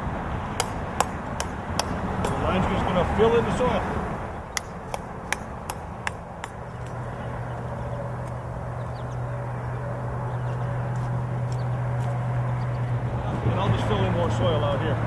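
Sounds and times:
low engine hum: 0.0 - 15.0.

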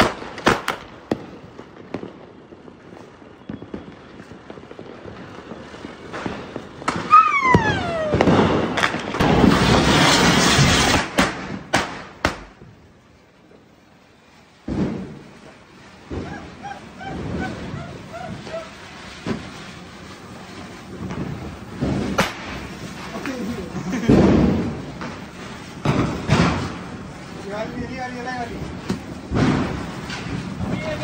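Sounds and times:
firecrackers cracking and banging: 0.0 - 31.0
fireworks hissing and crackling: 0.0 - 31.0
firework falling whistle: 2.7 - 5.8, 6.4 - 11.0, 14.7 - 23.2.

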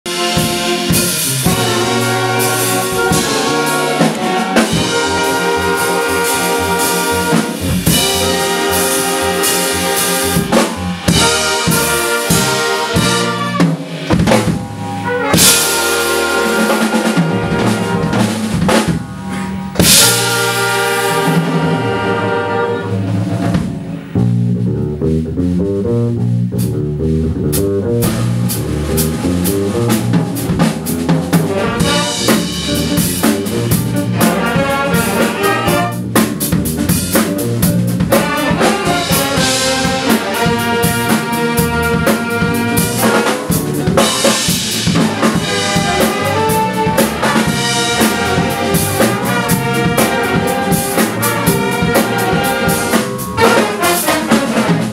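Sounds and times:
big band playing funk: 0.0 - 54.9
drum kit: 0.0 - 54.9.

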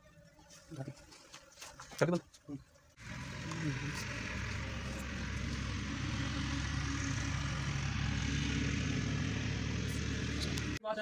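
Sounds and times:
motor engine idling: 3.0 - 10.8.

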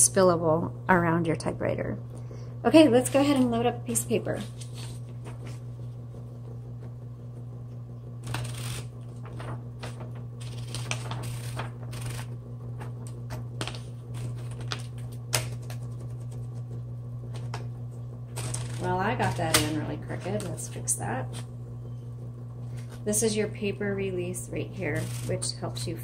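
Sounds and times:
paper rustling: 4.4 - 5.6, 8.3 - 16.6, 24.9 - 25.6
typewriter motor hum: 8.2 - 21.6, 22.2 - 26.0.

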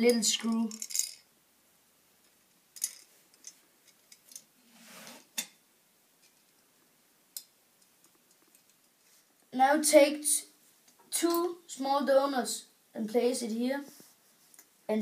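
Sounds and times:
metal clicks and clinks: 0.1 - 1.2
short scraping sound: 4.6 - 5.4.

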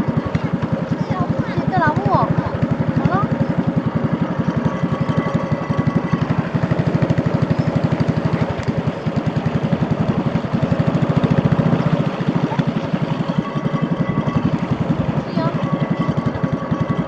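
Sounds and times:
small boat engine chugging: 0.0 - 17.0.

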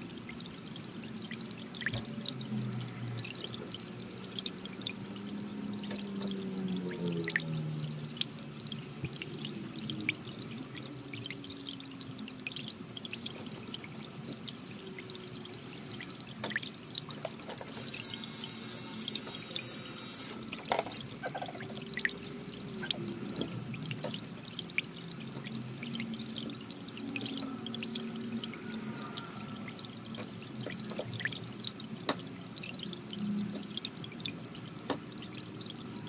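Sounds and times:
hiss: 17.7 - 20.4.

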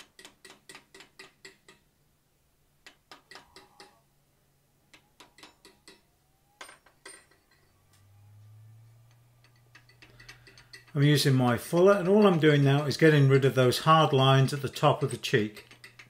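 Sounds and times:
hammer tapping on a steel punch: 0.0 - 1.9, 2.8 - 4.0, 4.9 - 6.1
harder hammer strikes: 2.8 - 4.0, 4.9 - 6.2.

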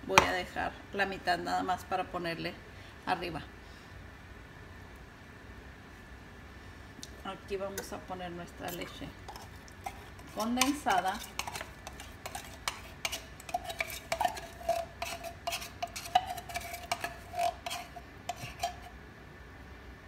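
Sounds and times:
metal spoon scraping tin can: 8.7 - 19.0.

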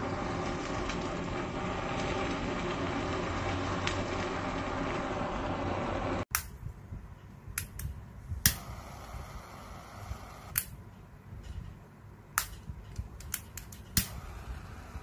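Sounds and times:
blowtorch igniter clicking: 7.5 - 10.8, 12.4 - 15.0.

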